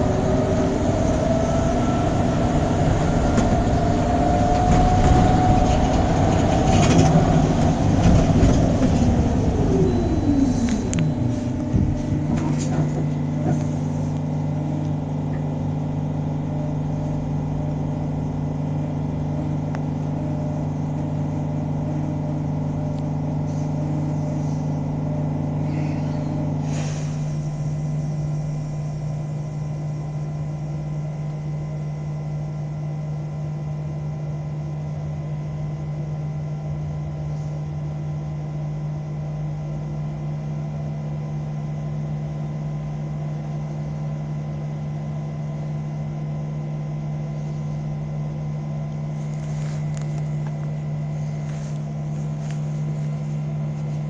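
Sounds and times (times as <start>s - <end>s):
electric bus humming: 0.0s - 34.0s, 45.4s - 54.0s
short air hiss: 25.7s - 27.4s.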